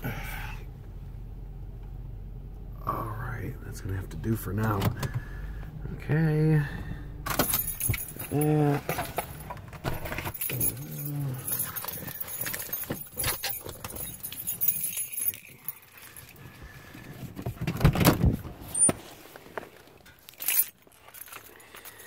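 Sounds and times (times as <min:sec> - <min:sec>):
keys jingling: 0:07.3 - 0:17.2, 0:20.0 - 0:22.0.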